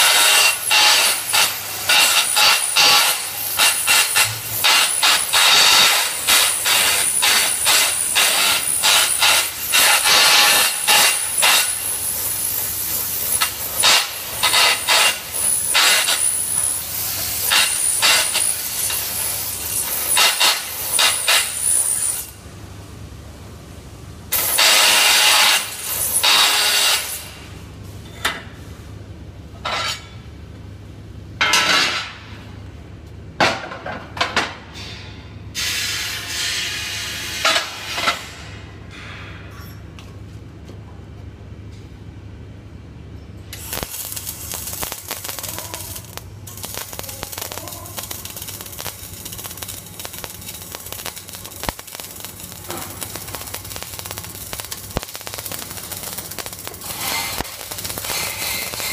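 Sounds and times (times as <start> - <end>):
welding arc crackling: 0.0 - 22.4, 24.3 - 27.4, 43.5 - 58.9.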